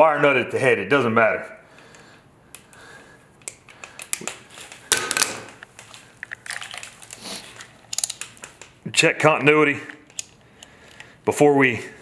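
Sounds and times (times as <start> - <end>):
hands handling electrical wire: 1.9 - 8.9, 9.9 - 11.2.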